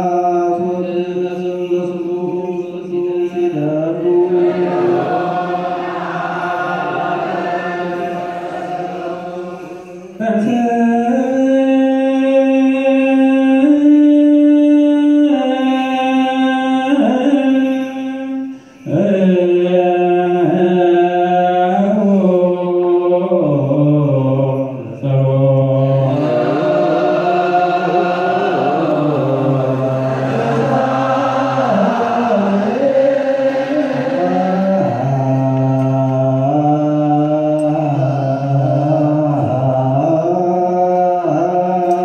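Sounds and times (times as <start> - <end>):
solo voice chanting long notes: 0.0 - 42.0
blend of voices chanting: 4.0 - 10.5, 25.2 - 42.0.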